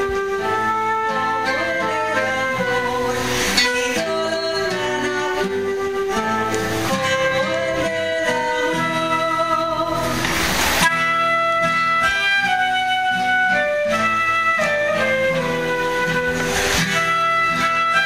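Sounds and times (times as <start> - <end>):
classical guitar accompaniment: 0.0 - 18.0
flute melody: 0.0 - 18.0
brief hiss: 3.0 - 4.2, 10.0 - 11.1, 16.2 - 17.2.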